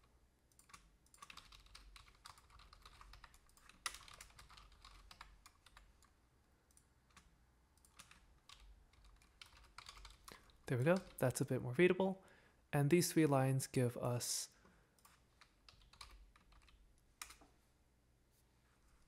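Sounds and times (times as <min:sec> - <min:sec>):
faint keyboard typing: 0:00.0 - 0:11.5, 0:14.9 - 0:17.6.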